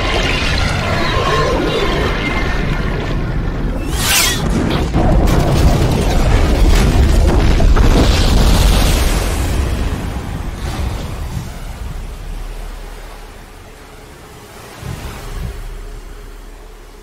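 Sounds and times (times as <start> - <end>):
underwater explosion booms: 4.4 - 13.7.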